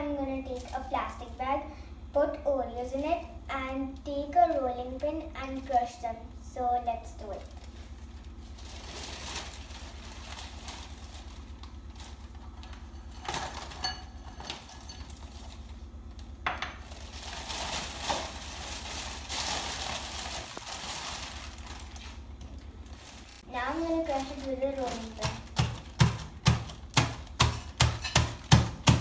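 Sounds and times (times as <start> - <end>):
plastic bag rustling: 7.3 - 26.0
cookies knocking on bowl: 25.2 - 29.0.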